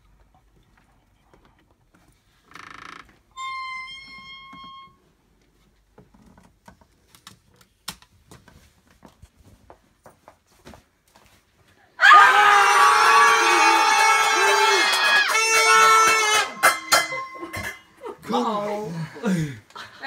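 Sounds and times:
high-pitched squeak: 0:03.3 - 0:05.0
faint footsteps: 0:08.4 - 0:11.8.

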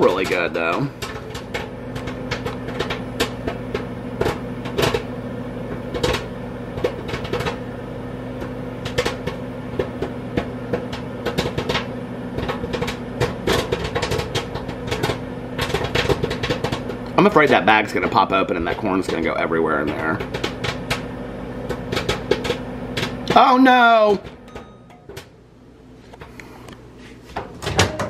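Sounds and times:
popcorn popping: 0:00.0 - 0:25.4
microwave oven humming: 0:00.0 - 0:28.0.

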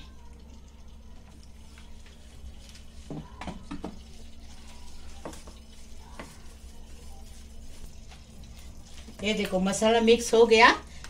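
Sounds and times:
hand rubbing paste on ceramic plate: 0:04.0 - 0:09.6.

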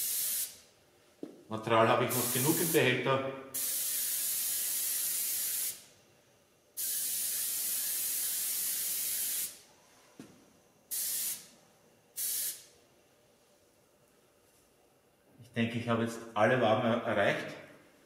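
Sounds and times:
airbrush hissing: 0:00.0 - 0:00.6, 0:02.1 - 0:02.9, 0:03.5 - 0:05.9, 0:06.8 - 0:09.7, 0:10.9 - 0:11.5, 0:12.2 - 0:12.7.

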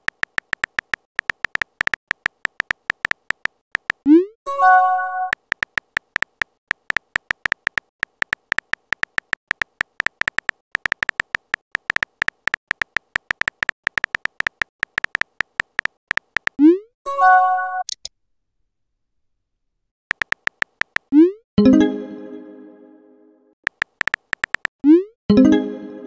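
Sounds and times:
keyboard typing clicks: 0:00.0 - 0:04.3, 0:05.0 - 0:16.7, 0:20.1 - 0:21.3, 0:23.7 - 0:25.0.

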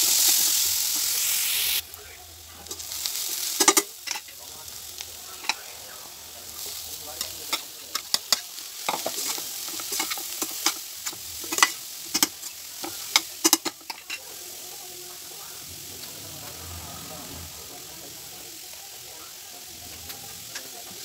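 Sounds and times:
frying sizzle: 0:00.0 - 0:21.0
metal spoon scraping a pan: 0:02.6 - 0:04.4, 0:05.3 - 0:05.7, 0:06.5 - 0:15.3.

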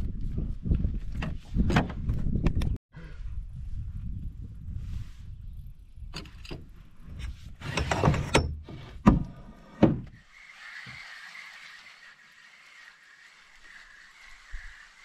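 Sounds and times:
wind buffeting microphone: 0:00.0 - 0:07.9.

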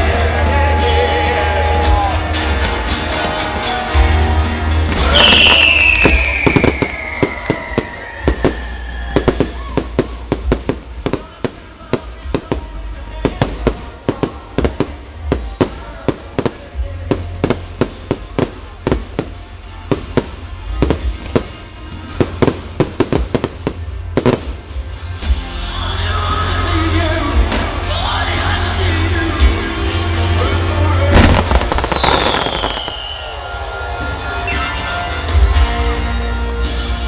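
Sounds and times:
music playing: 0:00.0 - 0:37.0
crackling fireworks bursts: 0:02.0 - 0:25.2, 0:31.0 - 0:34.6
fireworks bangs: 0:04.8 - 0:24.9, 0:31.1 - 0:33.6
falling firework whistle: 0:05.0 - 0:10.0, 0:31.2 - 0:33.8.

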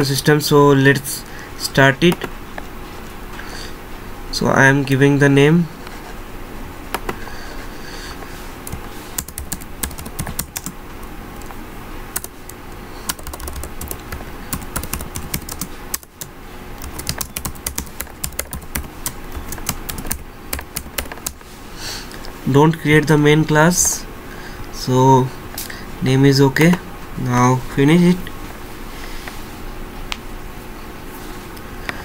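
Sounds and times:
keyboard typing: 0:08.6 - 0:11.5, 0:12.1 - 0:21.4.

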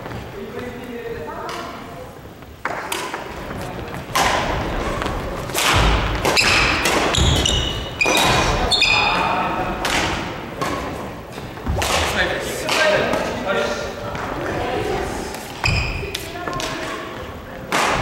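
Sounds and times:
rackets hitting shuttlecock: 0:02.6 - 0:03.4, 0:04.1 - 0:08.7, 0:09.8 - 0:13.3, 0:15.3 - 0:18.0
shoes squeaking on wooden floor: 0:06.1 - 0:09.4, 0:15.6 - 0:17.3.

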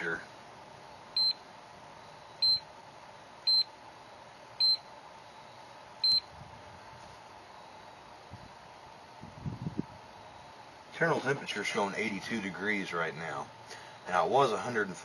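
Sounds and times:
charger short high beeps: 0:01.2 - 0:01.4, 0:02.3 - 0:02.6, 0:03.5 - 0:03.7, 0:04.6 - 0:04.8, 0:06.0 - 0:06.3.

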